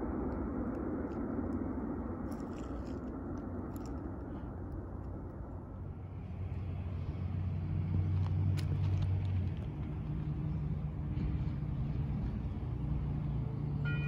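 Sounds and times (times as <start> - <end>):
engine humming: 0.0 - 14.0.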